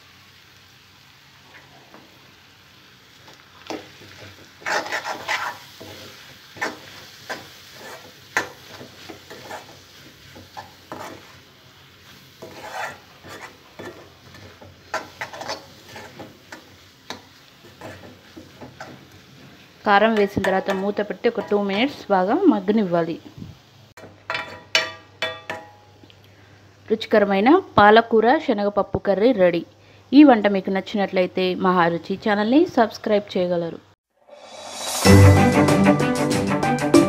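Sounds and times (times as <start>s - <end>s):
faint sizzle: 0.0s - 35.4s
metal spatula scraping pan: 3.7s - 11.4s, 12.3s - 19.0s, 20.2s - 21.6s.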